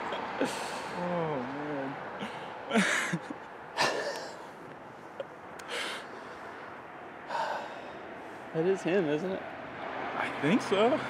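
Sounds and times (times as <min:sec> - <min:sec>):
person breathing heavily: 0:00.4 - 0:01.4, 0:05.6 - 0:08.5.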